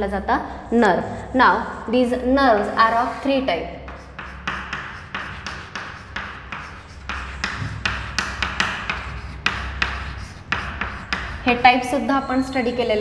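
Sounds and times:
chalk writing on a chalkboard: 0:02.5 - 0:11.8.

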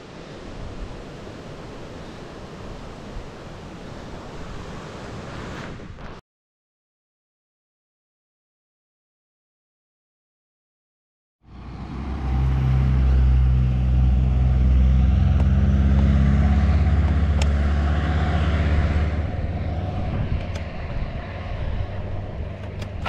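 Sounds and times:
wind and road noise: 0:00.0 - 0:06.2, 0:11.4 - 0:23.0
car passing: 0:11.5 - 0:23.0.

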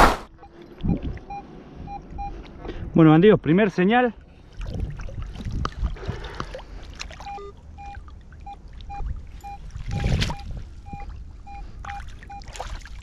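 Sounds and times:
metal detector beeping: 0:00.4 - 0:02.4, 0:07.2 - 0:12.5
water splashing and trickling: 0:03.6 - 0:13.0.

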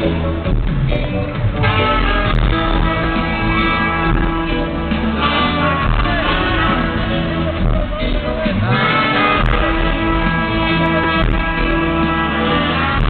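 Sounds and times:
live band playing: 0:00.0 - 0:13.0.

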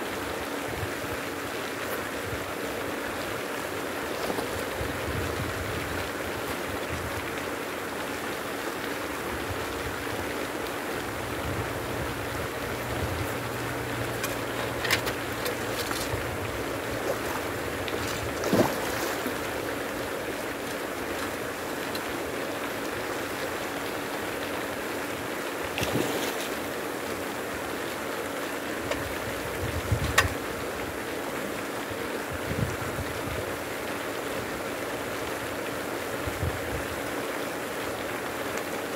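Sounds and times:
faint motor hum: 0:00.0 - 0:38.3
pond aerator splashing water: 0:01.4 - 0:06.8, 0:09.4 - 0:30.5.

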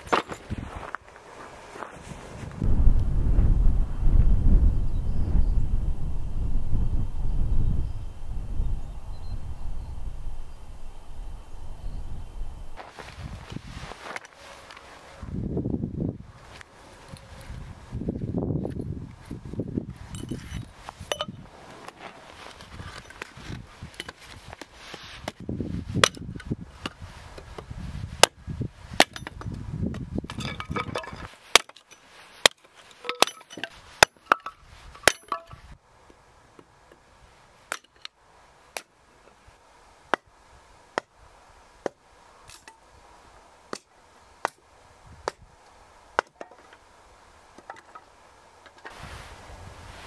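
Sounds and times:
low rumbling noise: 0:02.5 - 0:13.4.

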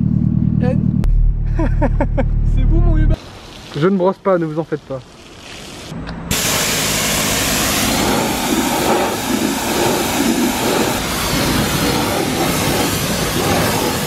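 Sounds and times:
pressure washer spraying water: 0:05.2 - 0:14.0.

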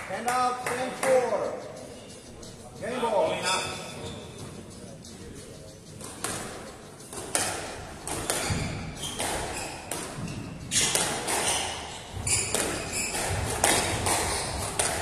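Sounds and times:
shoes squeaking on wooden floor: 0:02.8 - 0:04.8, 0:06.0 - 0:15.0
squash ball hits: 0:06.0 - 0:15.0.

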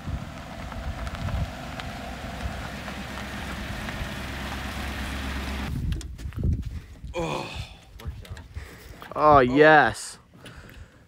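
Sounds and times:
tyres rolling over stones: 0:00.0 - 0:05.7
pickup engine rumbling: 0:00.0 - 0:05.8
wind on microphone: 0:05.7 - 0:07.2.

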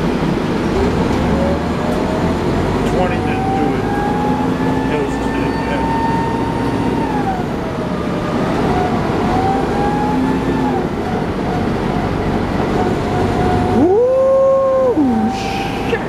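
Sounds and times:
bus diesel engine drone: 0:00.0 - 0:16.0
drivetrain whine: 0:00.0 - 0:16.0.

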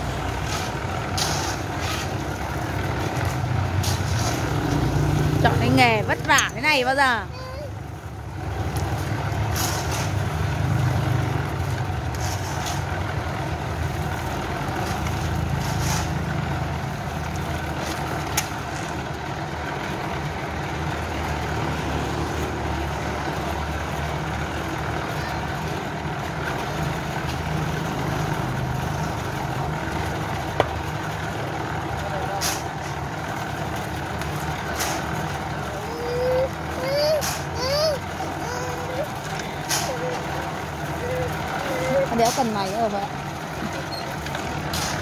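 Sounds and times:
concrete mixer running: 0:00.0 - 0:45.0
short scrapes: 0:00.4 - 0:02.2, 0:03.8 - 0:04.6, 0:15.6 - 0:16.2.

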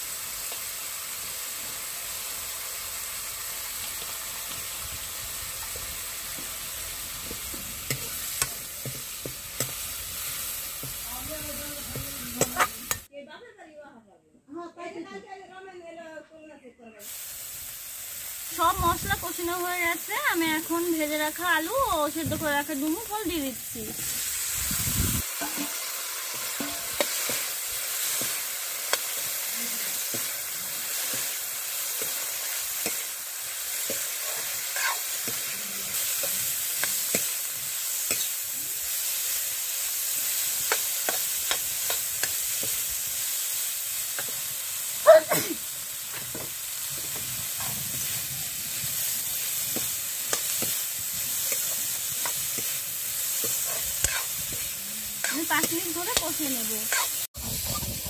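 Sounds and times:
oil sizzling in a pan: 0:00.0 - 0:13.1, 0:17.0 - 0:58.0
utensil scraping a pan: 0:33.9 - 0:35.6, 0:53.4 - 0:57.9.

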